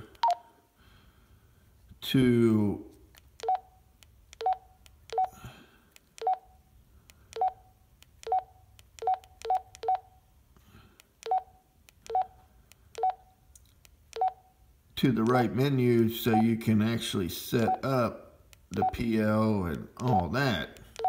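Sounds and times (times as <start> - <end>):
radio key beeps: 0.1 - 0.4, 18.8 - 19.2.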